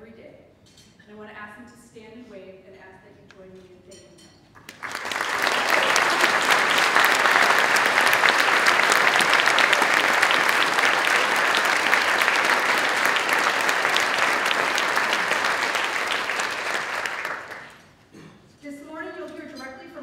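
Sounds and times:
audience applauding: 4.6s - 18.0s.

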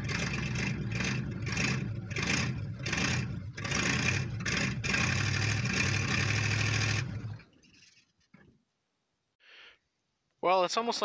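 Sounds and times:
car engine revving: 0.0s - 7.9s.

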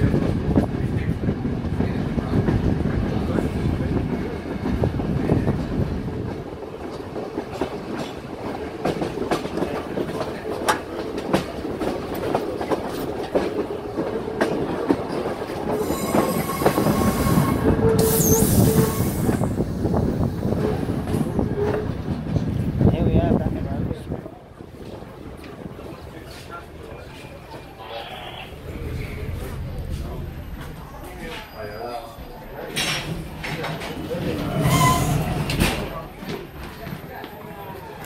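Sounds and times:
high-pitched wheel squeal: 15.8s - 19.5s, 34.5s - 35.6s
train wheels clicking over rail joints: 32.2s - 37.4s.

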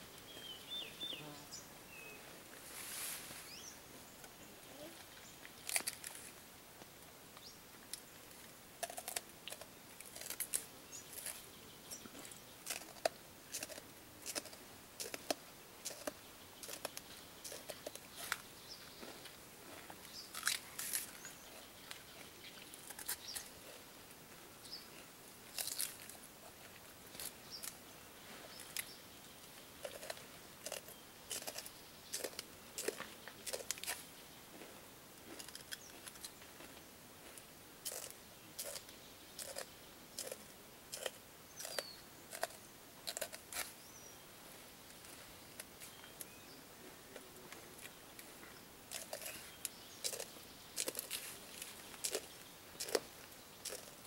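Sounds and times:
gorilla chewing celery: 8.8s - 18.4s, 19.2s - 27.8s, 29.8s - 34.0s, 35.4s - 36.7s, 37.8s - 43.7s, 48.9s - 54.0s.

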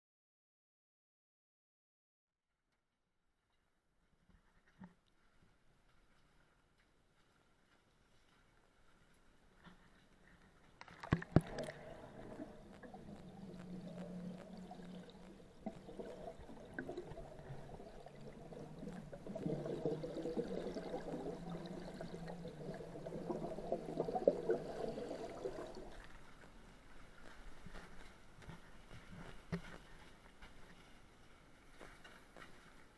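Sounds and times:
water pouring and gurgling: 10.8s - 26.5s.

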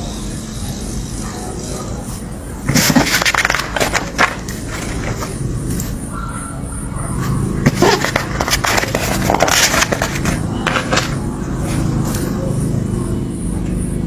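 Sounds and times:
steady low hum: 0.0s - 14.0s
paper rustling and crackling: 2.7s - 5.4s, 7.6s - 11.2s.

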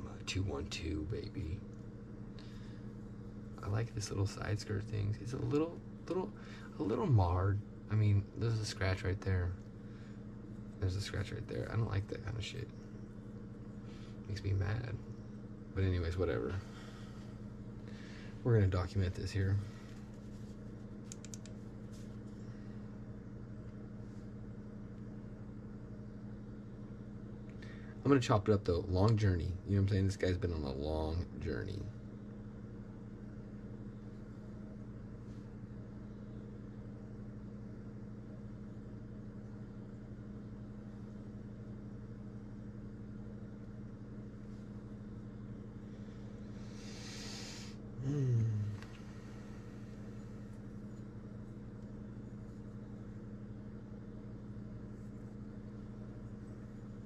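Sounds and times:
steady low hum: 0.0s - 57.0s
faint light clicks: 21.0s - 21.6s
short low vocal sound: 48.0s - 49.2s.

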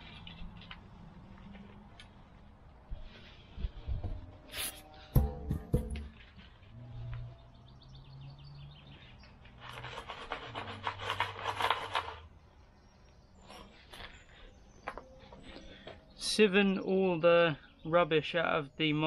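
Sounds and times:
soil scraping through a sieve: 9.5s - 12.3s.

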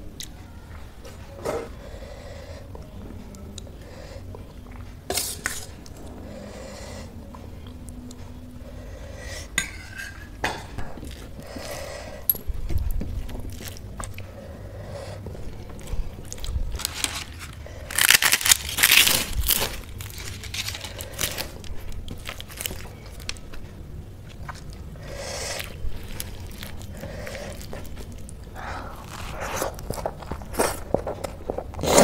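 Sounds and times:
crisp flatbread crushed by hand: 16.8s - 21.5s.

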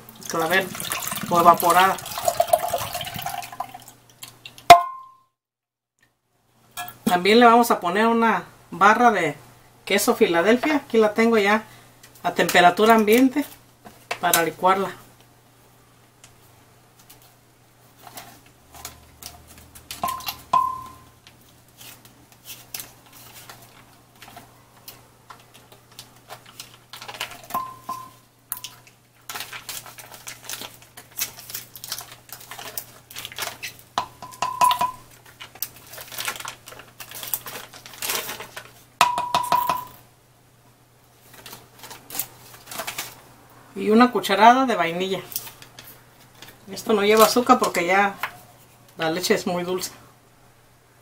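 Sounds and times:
foil crinkling: 21.3s - 27.7s, 28.5s - 34.0s, 35.0s - 39.0s, 41.2s - 43.2s, 45.2s - 48.4s
knocks on glass jar: 39.0s - 39.9s.

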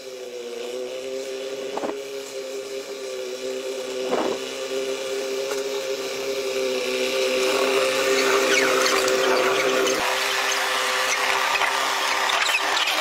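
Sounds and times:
steady hum: 0.4s - 10.3s
steel wheels squealing on rails: 7.9s - 13.0s.

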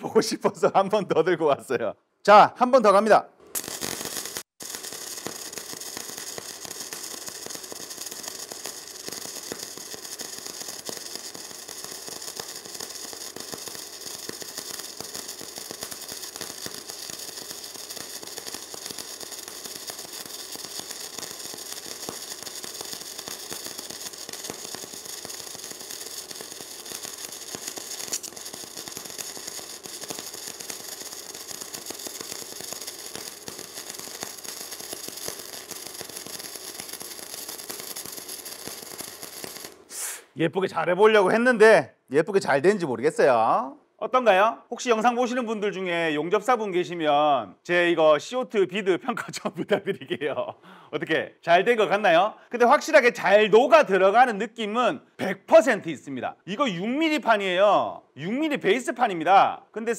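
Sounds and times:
welding arc crackling: 3.5s - 40.2s.

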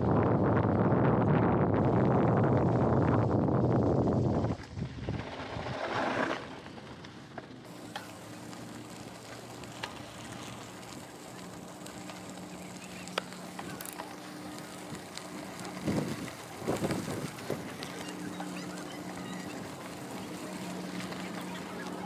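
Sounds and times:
wind buffeting microphone: 0.0s - 6.0s, 7.7s - 22.0s
bike tyres rolling on gravel: 0.0s - 22.0s.

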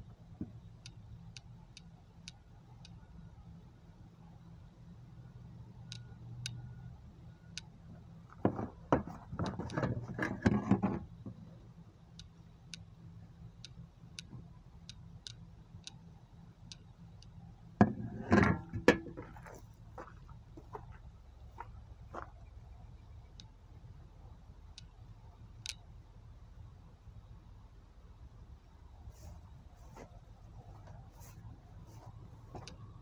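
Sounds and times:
faint sharp high ticks: 0.6s - 3.2s, 5.4s - 7.7s, 12.1s - 12.9s, 13.5s - 17.4s, 22.3s - 23.6s, 24.7s - 25.9s.

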